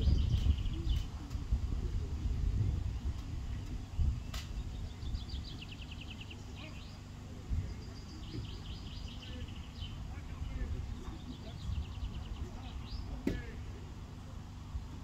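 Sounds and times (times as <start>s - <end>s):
wind rumbling on microphone: 0.0s - 6.3s, 7.4s - 13.6s
sharp click: 4.3s - 4.6s.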